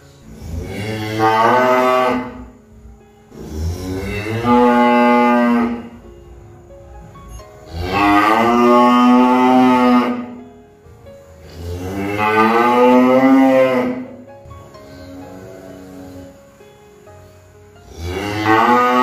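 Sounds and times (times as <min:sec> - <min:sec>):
cow mooing: 0:00.4 - 0:02.5, 0:03.3 - 0:06.0, 0:07.7 - 0:10.4, 0:11.4 - 0:14.2, 0:17.9 - 0:19.0.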